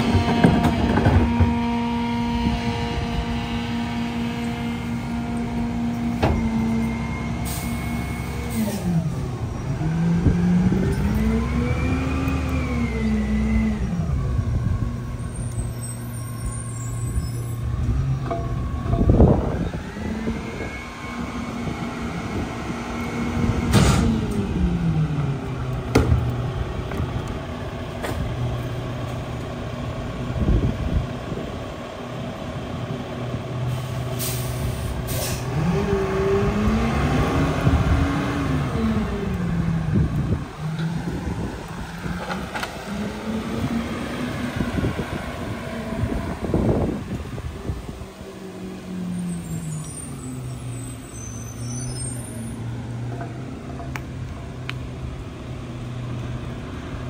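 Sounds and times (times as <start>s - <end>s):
garbage truck diesel engine: 0.0s - 57.0s
air brake hisses: 7.4s - 9.0s, 33.7s - 35.5s.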